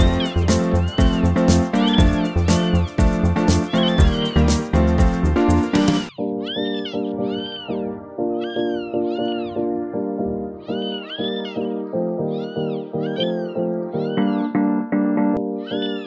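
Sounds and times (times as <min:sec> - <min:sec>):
cat meows pitched to a tune: 0:10.6 - 0:11.7.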